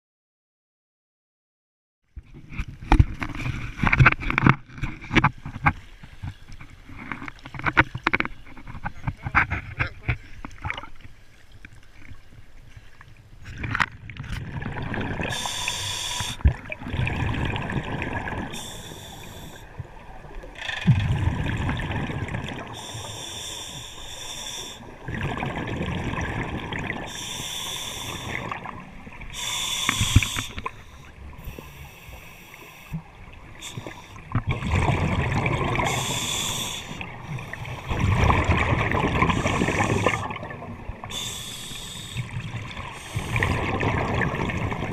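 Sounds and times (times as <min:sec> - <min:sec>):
water sloshing: 0:02.1 - 0:44.9
gurgling exhaled bubbles: 0:14.2 - 0:23.2, 0:24.9 - 0:31.8, 0:32.8 - 0:44.9
hissing regulator inhales: 0:15.3 - 0:16.5, 0:18.5 - 0:19.7, 0:22.7 - 0:24.9, 0:27.1 - 0:28.6, 0:29.3 - 0:33.0, 0:33.6 - 0:34.2, 0:35.8 - 0:37.9, 0:39.3 - 0:40.4, 0:41.0 - 0:43.6.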